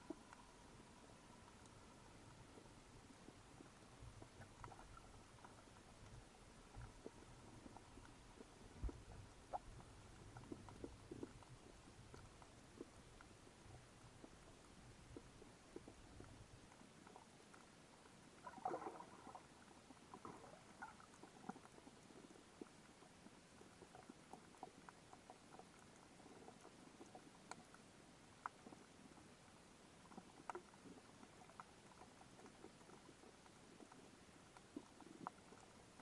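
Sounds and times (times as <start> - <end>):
low hiss: 0.0 - 36.0
underwater clicks and ticks: 0.0 - 36.0.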